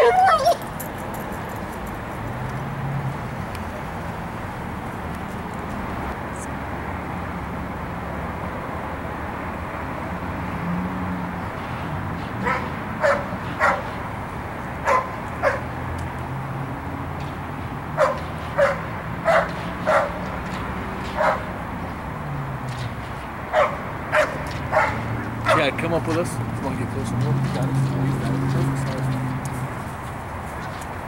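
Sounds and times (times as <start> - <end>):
dog barking: 0.0 - 0.6, 12.4 - 13.9, 14.8 - 15.7, 18.0 - 20.2, 21.2 - 21.5, 23.5 - 25.7.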